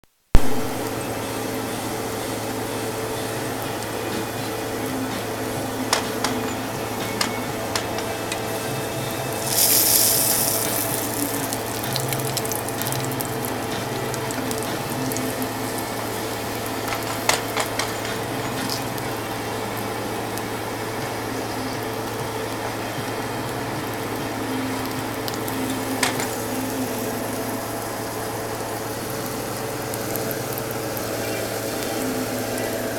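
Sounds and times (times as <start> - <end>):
oil sizzling in a frying pan: 0.4 - 32.9.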